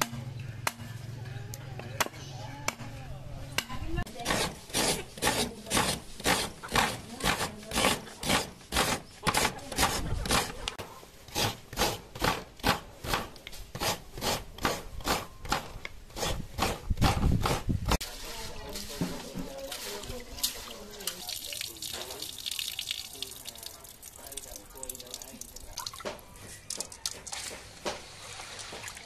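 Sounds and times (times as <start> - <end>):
coconut grater rasping: 4.1 - 12.5, 13.7 - 18.0.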